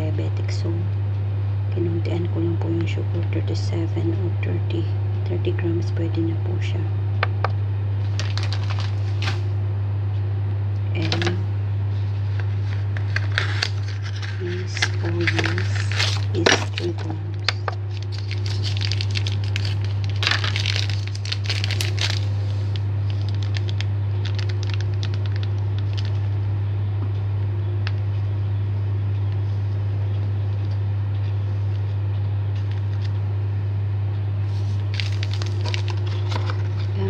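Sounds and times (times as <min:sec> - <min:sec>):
steady low hum: 0:00.0 - 0:37.0
packaging crinkling and rustling: 0:08.0 - 0:09.4, 0:12.1 - 0:26.4, 0:34.5 - 0:37.0.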